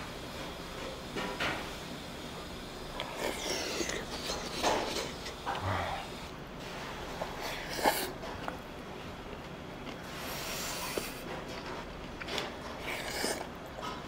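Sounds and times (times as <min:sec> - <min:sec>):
person chewing: 0:03.0 - 0:06.3, 0:07.2 - 0:11.3, 0:12.0 - 0:14.0
breathy sniff: 0:10.1 - 0:11.2.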